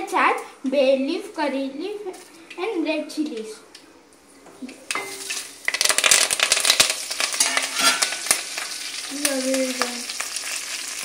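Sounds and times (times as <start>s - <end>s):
spices sizzling in hot oil: 4.8s - 11.0s.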